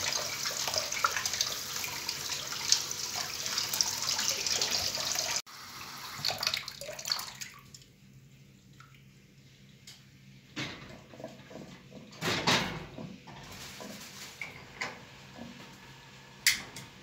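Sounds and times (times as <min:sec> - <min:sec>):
tap water splashing into a bowl: 0:06.2 - 0:07.9.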